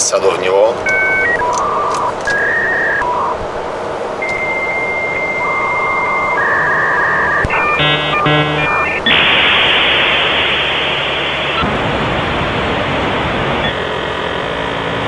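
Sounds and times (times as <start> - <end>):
low cab rumble: 0.0 - 14.5
electronic beeps: 0.8 - 3.4, 4.2 - 11.7
chord-like electronic pulses: 4.2 - 14.1.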